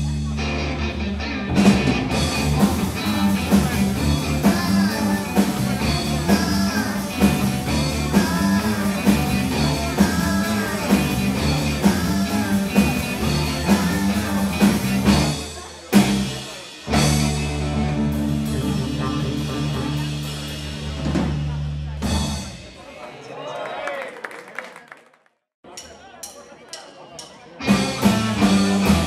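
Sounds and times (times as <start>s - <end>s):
electric guitar: 0.0s - 21.3s, 27.6s - 29.0s
electric bass: 0.0s - 22.6s, 27.6s - 29.0s
drum kit beat: 1.5s - 22.8s, 25.7s - 29.0s.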